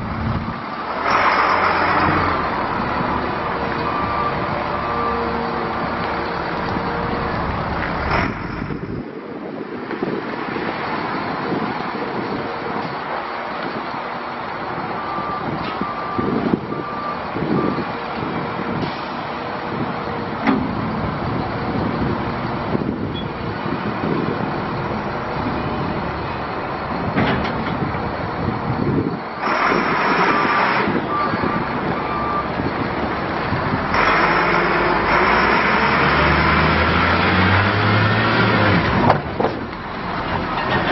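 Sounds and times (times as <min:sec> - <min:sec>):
diesel truck engine: 0:00.0 - 0:40.9
backup alarm beeps: 0:30.4 - 0:32.6.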